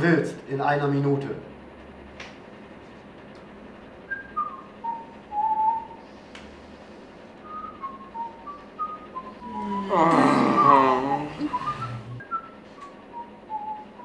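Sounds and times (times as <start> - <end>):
person whistling a tune: 4.1 - 6.0, 7.4 - 14.0.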